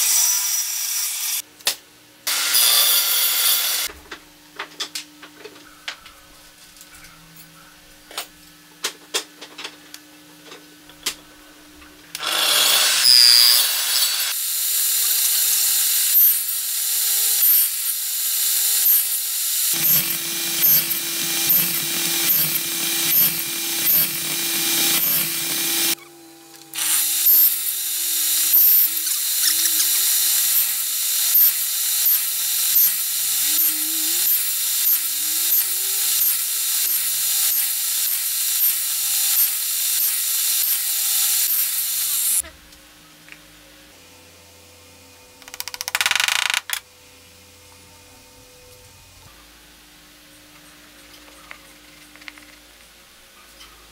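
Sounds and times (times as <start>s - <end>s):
table saw cutting wood: 0.0s - 1.4s, 2.3s - 3.9s, 12.2s - 26.0s, 26.7s - 42.4s.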